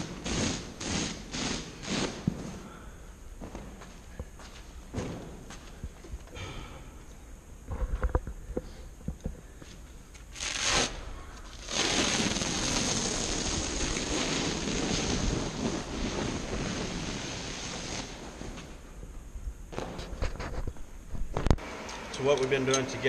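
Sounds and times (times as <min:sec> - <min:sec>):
carpet ripping off floor: 0:10.4 - 0:18.7.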